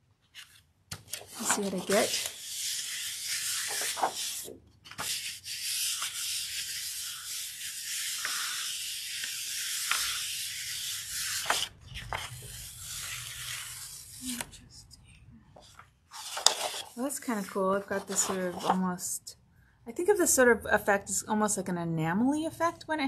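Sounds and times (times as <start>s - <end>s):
hands rubbing paper: 0.4s - 14.6s, 15.7s - 18.8s.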